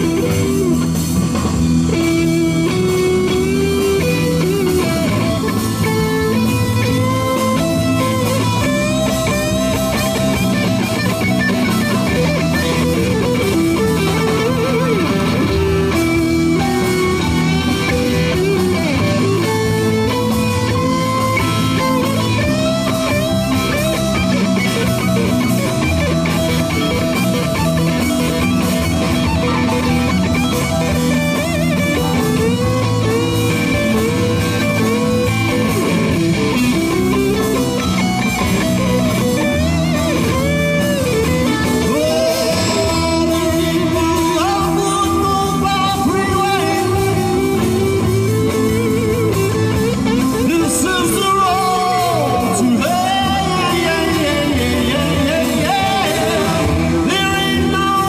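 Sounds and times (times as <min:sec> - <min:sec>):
drums: 0:00.0 - 0:58.0
electric guitar lead: 0:00.0 - 0:58.0
keyboards: 0:00.0 - 0:58.0.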